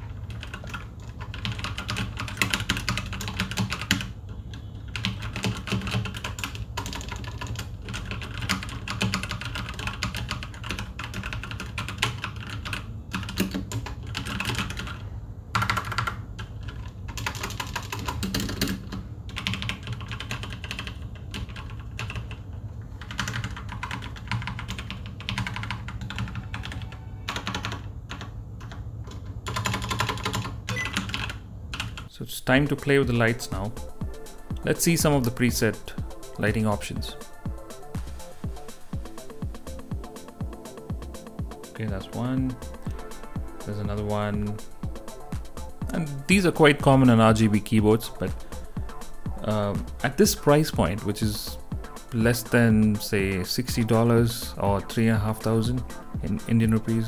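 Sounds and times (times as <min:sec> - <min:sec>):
mechanical keyboard typing: 0:00.0 - 0:22.4, 0:23.0 - 0:32.1.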